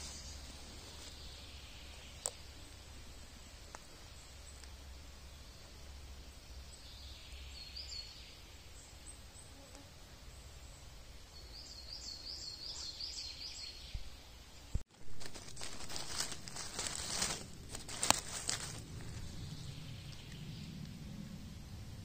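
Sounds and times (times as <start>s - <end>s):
songbird calling: 10.6s - 14.1s
dry leaves rustling: 14.9s - 19.8s.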